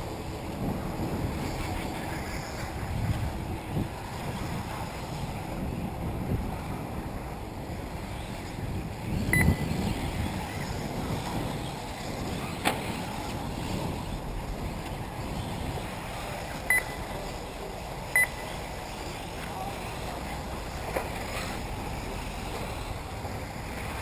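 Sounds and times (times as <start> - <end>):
outdoor background noise: 0.0 - 24.0
wind buffeting microphone: 0.0 - 24.0
short high electronic beeps: 16.7 - 17.0, 18.2 - 18.4.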